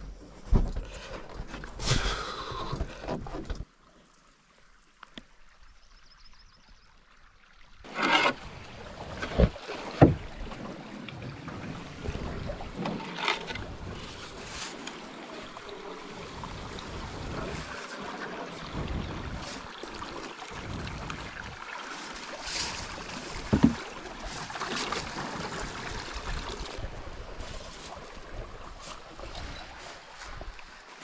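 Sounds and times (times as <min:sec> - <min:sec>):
water swishing along canoe hull: 0:00.0 - 0:04.5, 0:07.8 - 0:31.0
wind gusting on microphone: 0:18.6 - 0:19.8.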